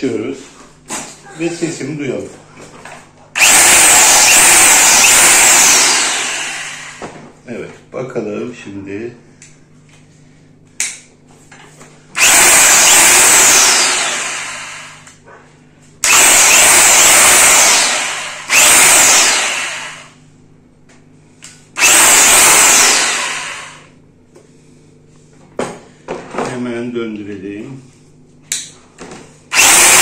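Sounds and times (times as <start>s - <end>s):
rotary hammer motor revving: 3.4s - 7.0s, 12.2s - 15.1s, 16.0s - 20.2s, 21.8s - 23.9s, 29.5s - 30.0s.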